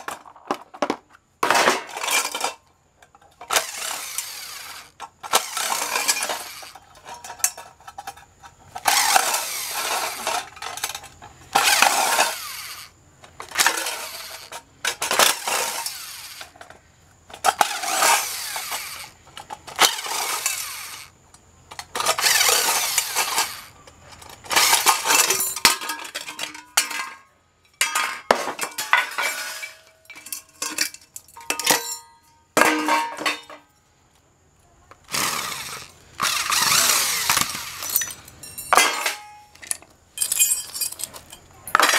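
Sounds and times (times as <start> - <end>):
metal screws clinking: 1.9 - 16.7, 21.7 - 33.6, 35.4 - 41.9
impact driver bursts: 8.8 - 10.5, 17.5 - 21.1, 35.1 - 38.0.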